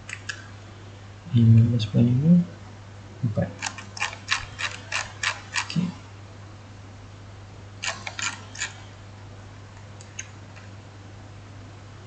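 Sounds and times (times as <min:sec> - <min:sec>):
low electrical hum: 0:00.0 - 0:12.0
keyboard and mouse clicking: 0:03.6 - 0:05.8.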